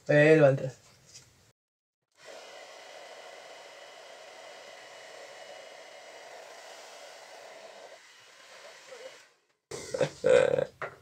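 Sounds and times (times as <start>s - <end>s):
hair dryer blowing: 2.2s - 9.3s.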